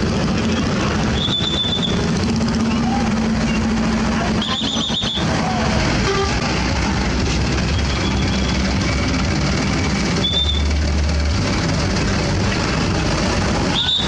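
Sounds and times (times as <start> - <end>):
truck engines running: 0.0 - 14.0.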